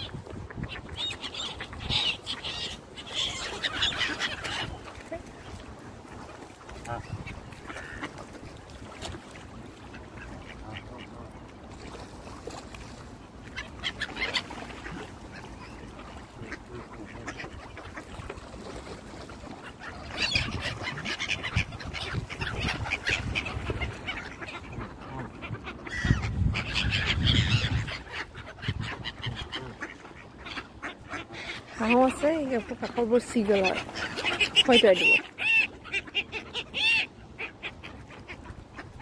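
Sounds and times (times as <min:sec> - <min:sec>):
ducks quacking: 0:00.0 - 0:09.0, 0:09.7 - 0:11.4, 0:13.4 - 0:39.0.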